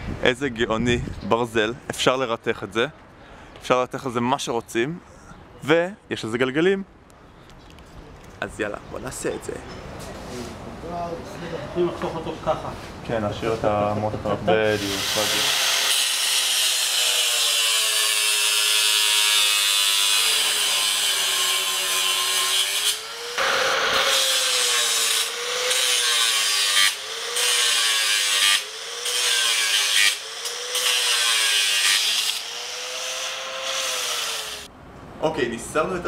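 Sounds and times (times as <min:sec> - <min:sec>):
angle grinder cutting metal: 0:14.6 - 0:34.7.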